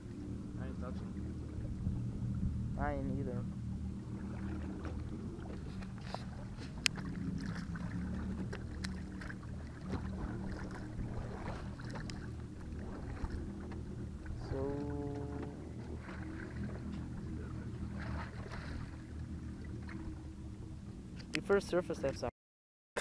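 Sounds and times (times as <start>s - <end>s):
boat motor humming: 0.0s - 22.3s
water splashes and knocks: 3.7s - 20.3s.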